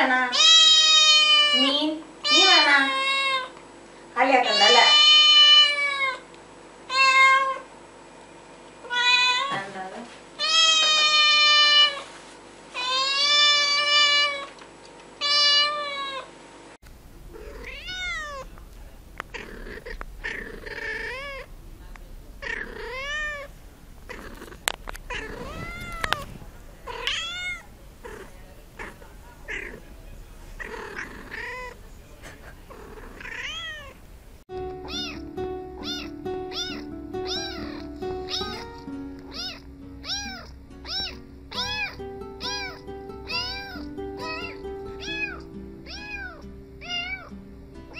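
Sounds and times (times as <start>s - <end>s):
kitten meowing loudly: 0.3s - 3.5s, 4.5s - 6.2s, 6.9s - 7.6s, 8.8s - 9.6s, 10.4s - 12.0s, 15.2s - 16.3s, 17.4s - 18.5s, 19.3s - 21.5s, 22.4s - 23.5s, 25.1s - 26.3s, 26.9s - 28.2s, 33.2s - 34.0s, 34.8s - 35.2s, 35.8s - 38.7s, 39.3s - 47.3s.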